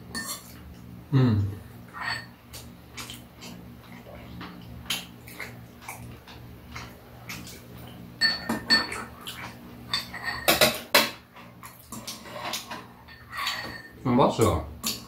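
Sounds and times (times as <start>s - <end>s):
metal spoon clinking on bowl: 8.2s - 9.0s.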